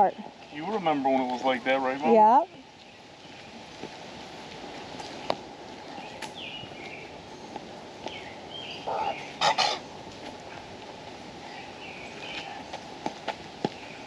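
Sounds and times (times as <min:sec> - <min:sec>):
birds chirping: 0:00.0 - 0:14.0
steady outdoor hiss: 0:00.0 - 0:14.0.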